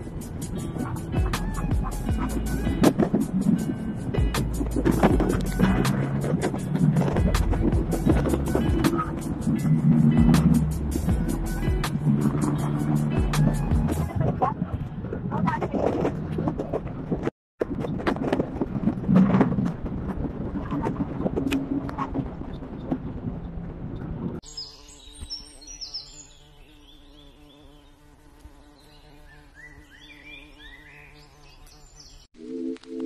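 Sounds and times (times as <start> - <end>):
wind rushing on phone microphone: 0.0 - 24.4
birds chirping: 22.4 - 32.3.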